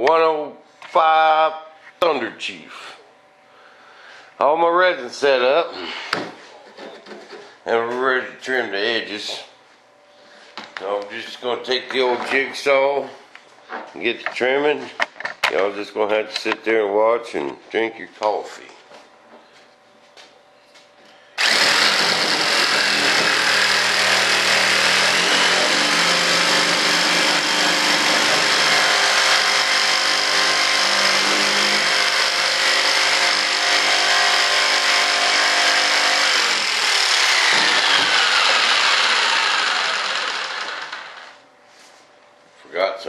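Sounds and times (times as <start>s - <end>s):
jigsaw cutting fiberglass: 21.4s - 41.4s.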